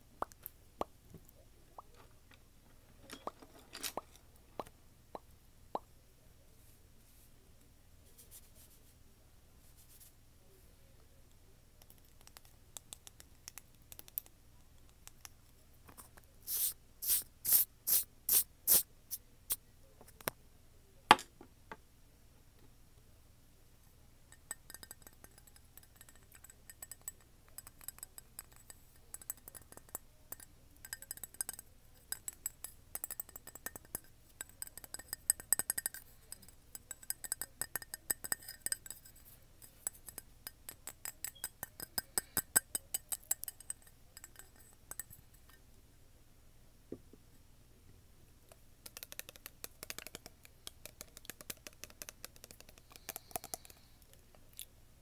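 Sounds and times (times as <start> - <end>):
light tapping and clinking: 3.0 - 5.2, 24.3 - 45.6.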